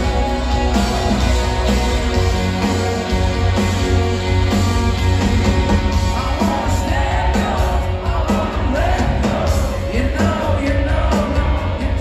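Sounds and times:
live rock band playing: 0.0s - 12.0s
person singing: 6.0s - 12.0s.

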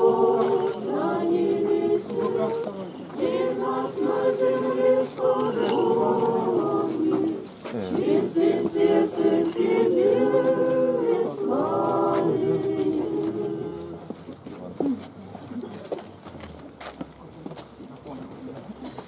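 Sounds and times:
voices chanting in harmony: 0.0s - 14.1s.

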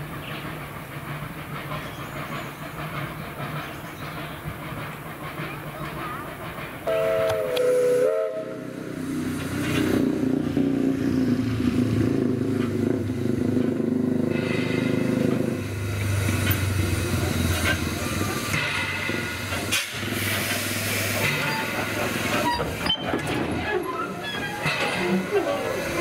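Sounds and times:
steam locomotive working: 0.0s - 26.0s
steam locomotive whistle: 6.8s - 8.7s.

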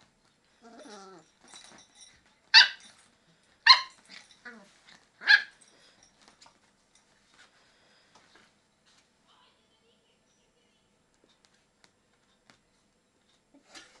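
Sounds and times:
dog whining: 0.6s - 1.3s
dogs barking sharply: 2.6s - 2.9s, 3.7s - 4.0s, 5.2s - 5.5s.

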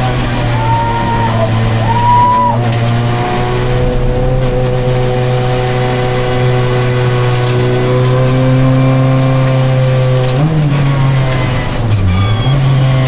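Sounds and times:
race car engine running: 0.0s - 13.0s
tyre squeal: 0.3s - 3.6s.

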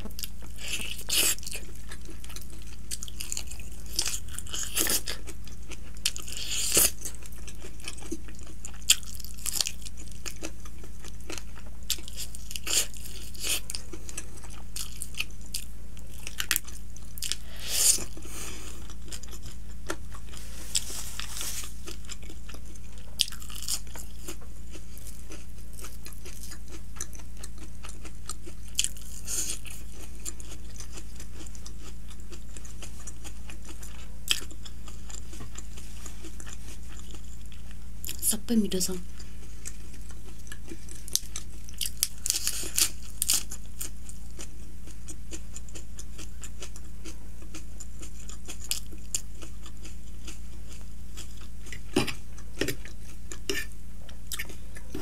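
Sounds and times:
chewing and biting: 0.0s - 38.2s, 39.2s - 55.0s
steady low hum: 0.0s - 55.0s.

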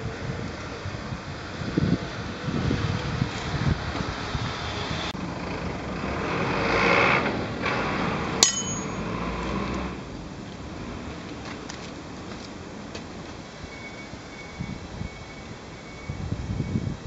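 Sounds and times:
metal clink: 8.4s - 9.2s.

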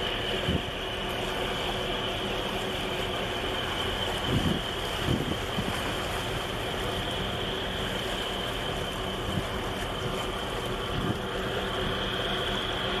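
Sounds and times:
ship engines droning: 0.0s - 13.0s
wind buffeting microphone: 0.3s - 0.8s, 4.0s - 6.2s, 9.2s - 11.4s.

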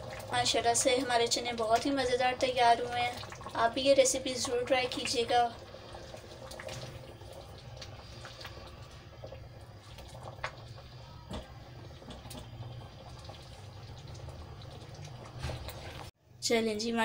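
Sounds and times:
thick gravy bubbling in a pan: 0.0s - 16.2s.

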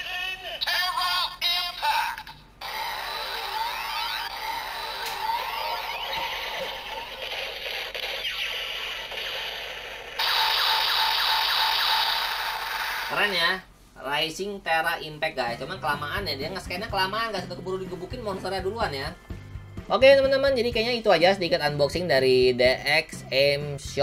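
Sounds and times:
gliding electronic tones: 2.6s - 12.3s
fast electronic pulsing: 2.6s - 13.2s.

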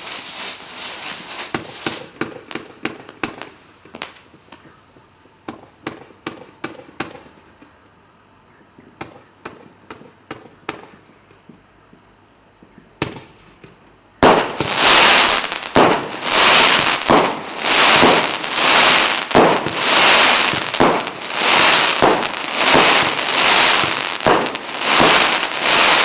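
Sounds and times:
firework hiss: 0.0s - 4.2s, 14.2s - 26.0s
firework shots bursting: 14.2s - 26.0s.

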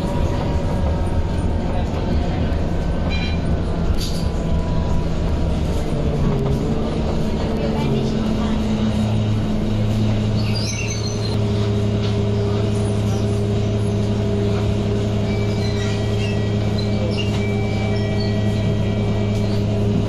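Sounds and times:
diesel engine idling: 0.0s - 15.3s.

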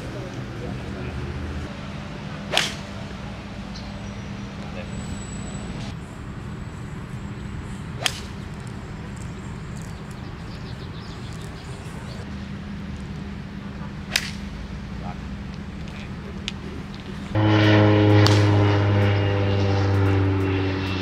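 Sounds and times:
golf club striking ball: 2.4s - 4.1s, 7.9s - 10.2s, 14.1s - 14.5s, 18.2s - 18.8s.

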